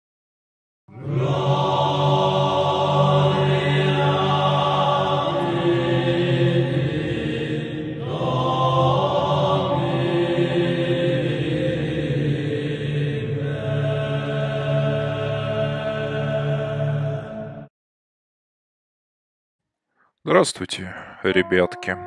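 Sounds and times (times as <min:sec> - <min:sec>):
low droning chanted voices: 0:00.9 - 0:17.7.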